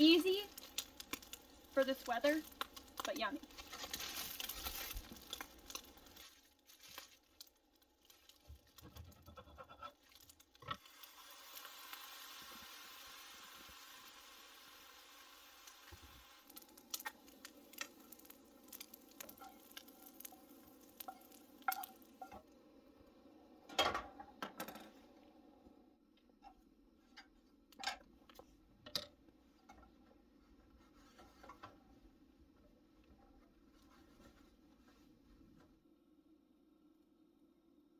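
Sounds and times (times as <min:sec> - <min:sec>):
pan and utensils clinking: 0:19.3 - 0:22.4.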